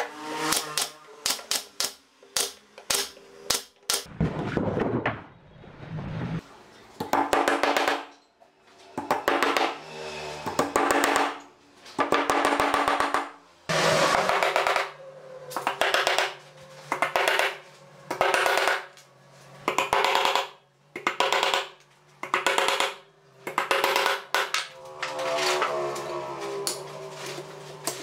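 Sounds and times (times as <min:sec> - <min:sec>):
hammer driving nails into boards: 0:07.0 - 0:08.1, 0:09.0 - 0:09.8, 0:10.5 - 0:11.4, 0:12.0 - 0:13.4, 0:15.6 - 0:18.9, 0:19.7 - 0:24.7.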